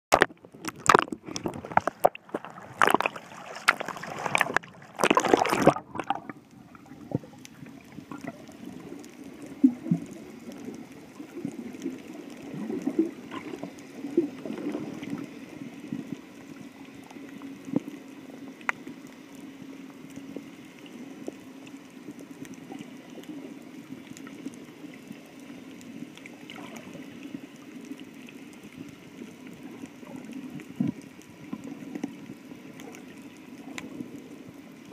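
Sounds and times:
water splashing against case: 0:00.1 - 0:06.3
faint underwater clicks: 0:00.1 - 0:34.9
muffled underwater hum: 0:00.1 - 0:34.9.

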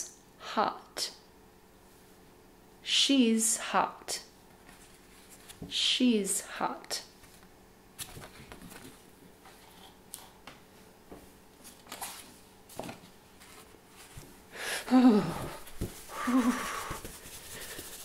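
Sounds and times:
paper cards rustling and tapping: 0:07.2 - 0:09.9, 0:11.7 - 0:14.3.

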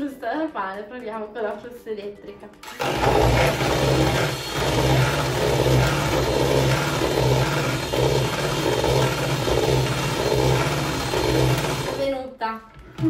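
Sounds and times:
electric hand mixer whipping cream: 0:02.6 - 0:12.2.

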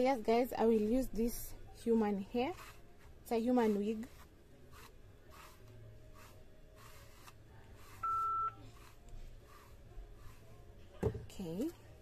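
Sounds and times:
comb strokes through hair: 0:00.4 - 0:10.8
electronic beep: 0:08.0 - 0:08.6.

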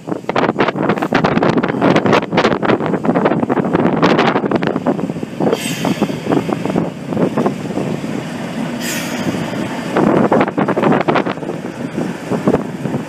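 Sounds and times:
diesel locomotive passing: 0:00.8 - 0:13.0
short hisses: 0:05.5 - 0:06.3, 0:08.8 - 0:09.5.

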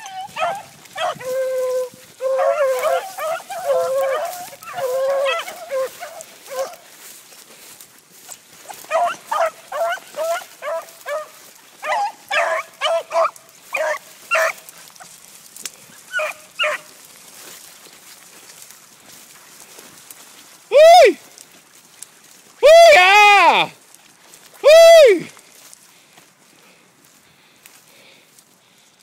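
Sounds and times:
dogs baying: 0:00.0 - 0:06.9, 0:08.3 - 0:15.2, 0:16.1 - 0:17.0.

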